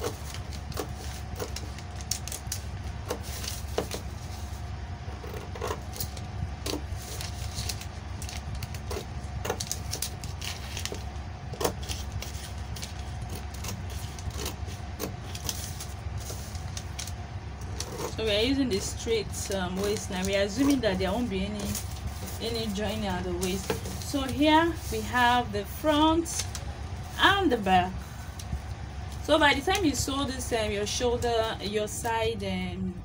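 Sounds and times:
scissors snipping paper: 0:00.0 - 0:04.1, 0:05.1 - 0:25.0
steady low hum: 0:00.0 - 0:33.0.

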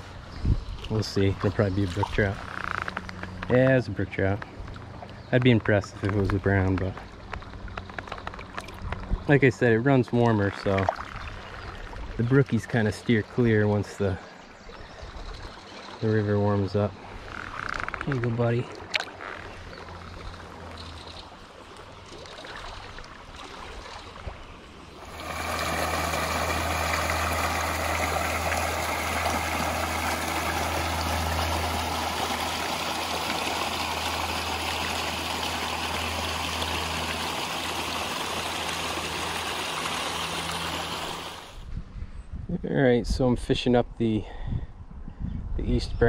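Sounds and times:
stream water running: 0:00.0 - 0:41.7
water rushing through dam: 0:25.0 - 0:41.5.

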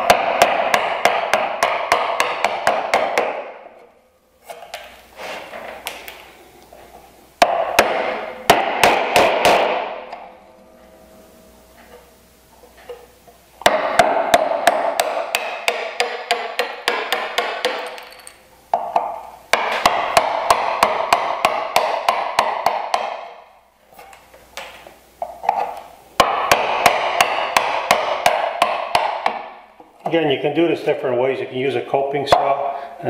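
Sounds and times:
mallet tapping wood chisel: 0:00.1 - 0:03.6, 0:12.9 - 0:23.3, 0:26.2 - 0:29.5.

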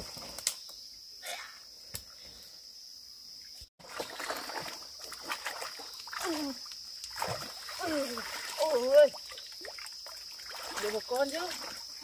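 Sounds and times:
high insect drone: 0:00.0 - 0:12.0
water sloshing and splashing: 0:03.8 - 0:12.0.

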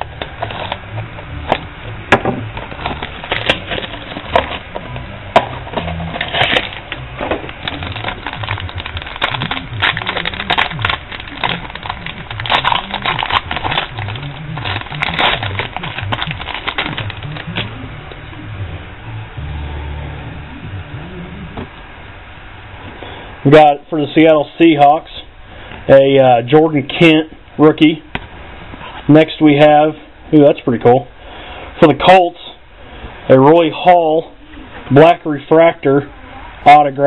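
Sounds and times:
foil wrapper crinkling and tearing: 0:00.1 - 0:00.8, 0:02.6 - 0:05.0, 0:05.6 - 0:17.7.

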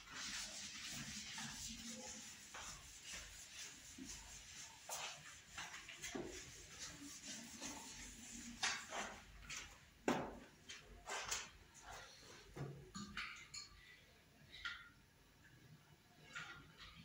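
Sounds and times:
eraser wiping whiteboard: 0:00.0 - 0:09.7.

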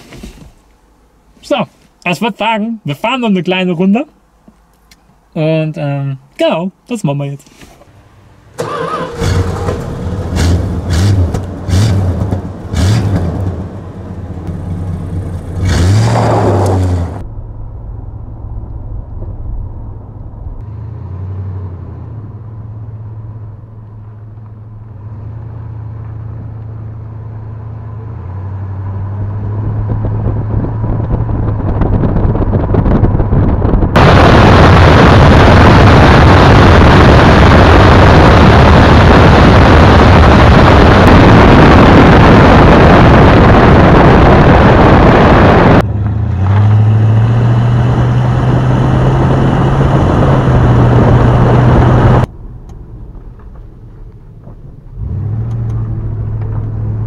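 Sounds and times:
car engine revving: 0:08.1 - 0:57.0
wind rushing on camera: 0:08.6 - 0:57.0.

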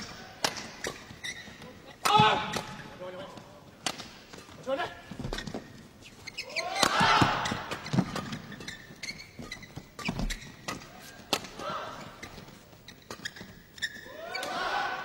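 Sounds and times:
shoes squeaking on court: 0:00.0 - 0:14.6
racket hitting shuttlecock: 0:00.4 - 0:01.1, 0:03.8 - 0:04.3, 0:06.7 - 0:08.9, 0:10.0 - 0:11.6.

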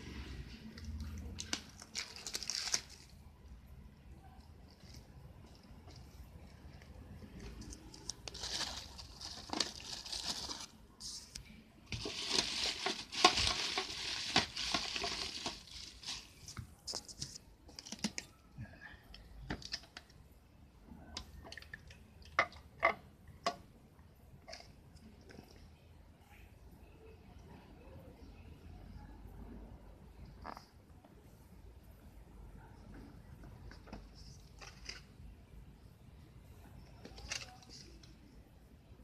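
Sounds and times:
plastic packaging crinkling: 0:00.7 - 0:03.2, 0:04.7 - 0:18.4, 0:37.0 - 0:38.2.

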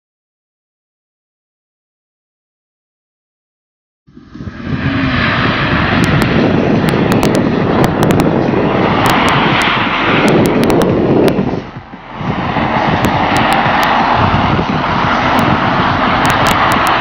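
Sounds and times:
car engine at high revs: 0:04.1 - 0:17.0.

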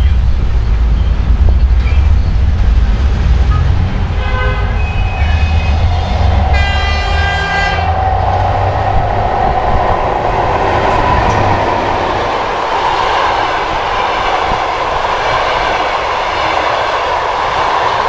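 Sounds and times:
train wheels rolling on rails: 0:00.0 - 0:18.0
locomotive horn blast: 0:03.6 - 0:09.0.

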